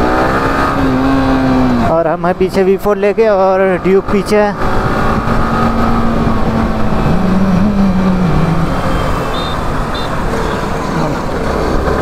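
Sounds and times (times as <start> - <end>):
wind rush on microphone: 4.6 - 11.4
motorcycle engine running: 4.6 - 12.0.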